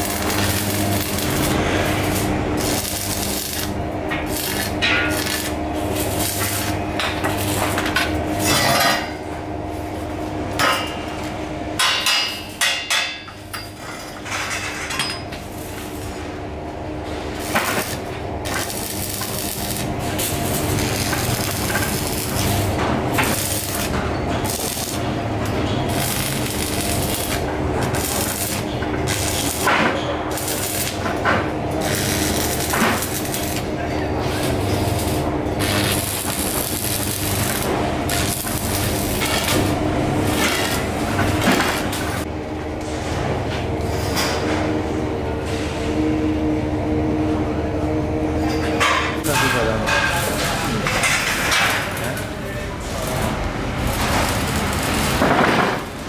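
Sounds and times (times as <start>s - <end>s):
electric arc welding: 0.0s - 8.6s, 17.3s - 42.3s, 51.3s - 56.0s.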